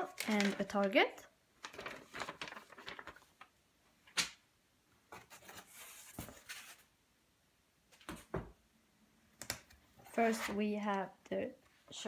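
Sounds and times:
paper rustling and sliding: 1.6s - 3.5s, 5.1s - 6.9s.

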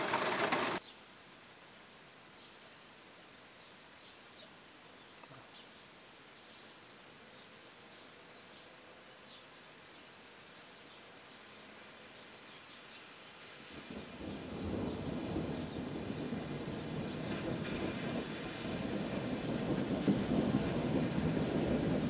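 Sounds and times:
faint steady hiss: 0.0s - 22.0s
small birds chirping: 2.3s - 17.6s.

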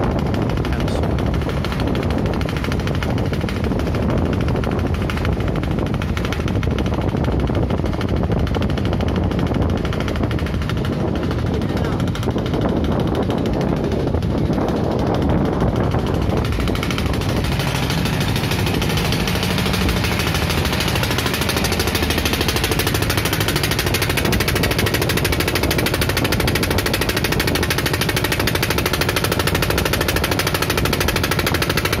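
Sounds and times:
motorboat engine running: 0.0s - 32.0s.

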